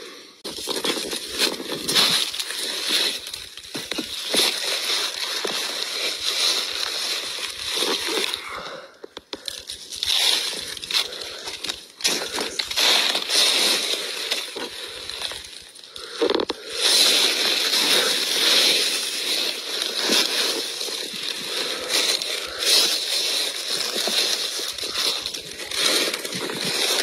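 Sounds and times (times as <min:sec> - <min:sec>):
dry leaves rustling underfoot: 0:00.4 - 0:08.5, 0:09.4 - 0:27.0.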